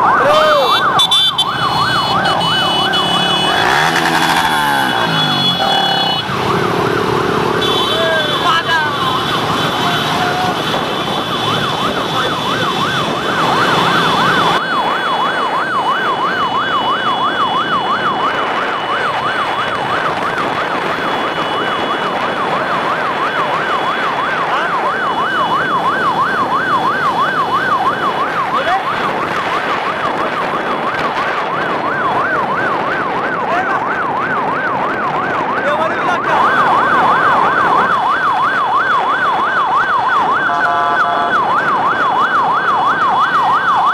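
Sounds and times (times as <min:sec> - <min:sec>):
electronic siren yelping: 0:00.0 - 0:43.9
motorbike engines running: 0:00.1 - 0:43.2.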